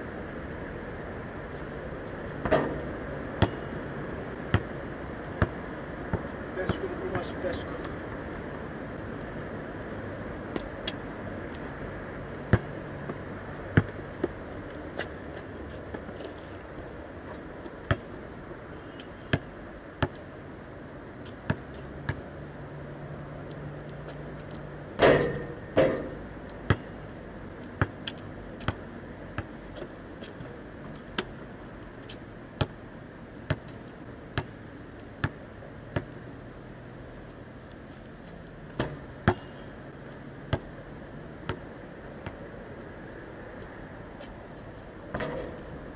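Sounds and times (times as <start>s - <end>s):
basketball bouncing on asphalt: 2.3s - 3.8s, 4.4s - 7.9s, 12.3s - 20.4s, 21.2s - 22.3s, 24.1s - 27.0s, 27.6s - 32.8s, 33.4s - 36.3s, 38.6s - 40.8s, 41.4s - 42.4s.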